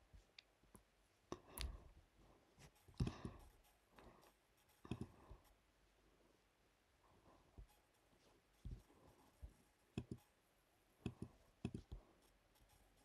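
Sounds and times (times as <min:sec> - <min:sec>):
faint computer mouse clicks: 0:10.0 - 0:10.2, 0:11.0 - 0:12.0.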